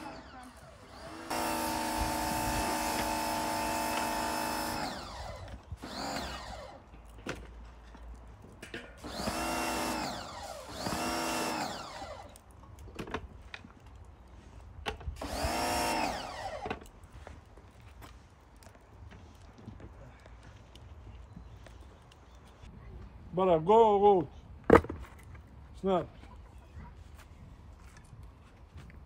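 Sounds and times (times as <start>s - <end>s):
power tool motor spinning: 0.0s - 6.9s, 9.0s - 12.4s, 15.2s - 16.8s.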